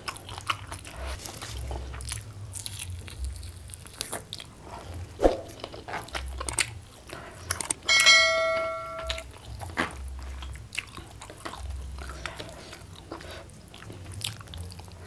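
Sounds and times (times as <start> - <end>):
person biting and chewing: 0.0 - 7.9
bell chime ding: 7.9 - 9.2.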